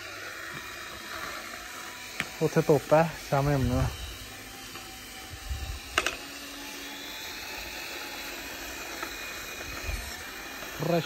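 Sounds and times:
small electric motor and gears: 0.0s - 11.0s.

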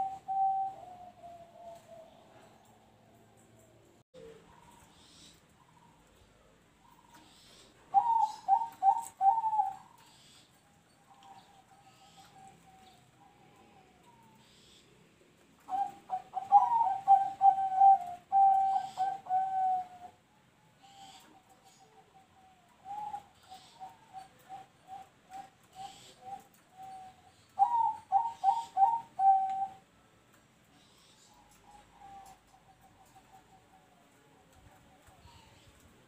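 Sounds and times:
dove cooing: 0.0s - 6.2s, 6.8s - 10.3s, 15.6s - 29.9s, 30.8s - 36.0s.

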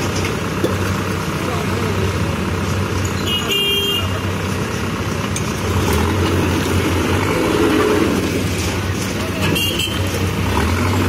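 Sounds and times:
diesel engine running: 0.0s - 11.0s
vehicle horn tooting: 3.2s - 4.2s, 9.4s - 10.2s.

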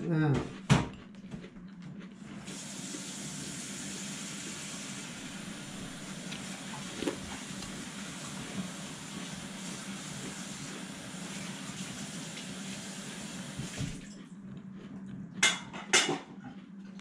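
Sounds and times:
tap water running into sink: 10.0s - 14.0s.

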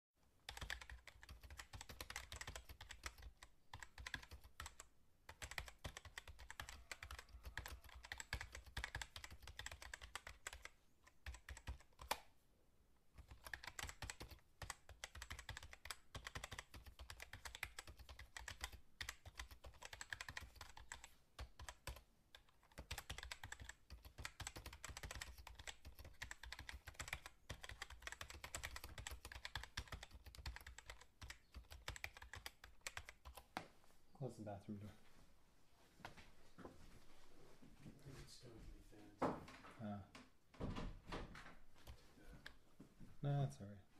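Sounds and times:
computer keyboard typing: 0.4s - 12.3s, 13.2s - 33.5s.

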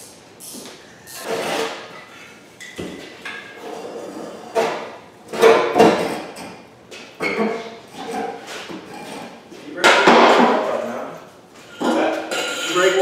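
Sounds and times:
metal clanks with ringing: 11.8s - 13.0s.

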